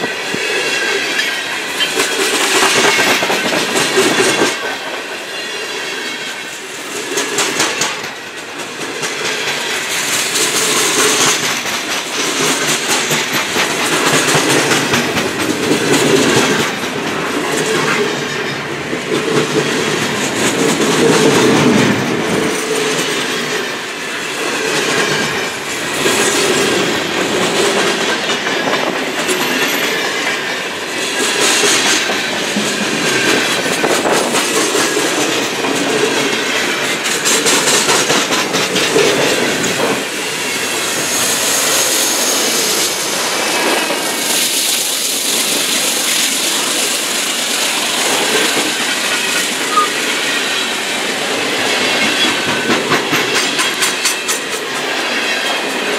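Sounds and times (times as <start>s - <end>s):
freight train wheels rumbling on rails: 0.0s - 55.9s
train wheels clicking and clacking: 0.0s - 55.9s.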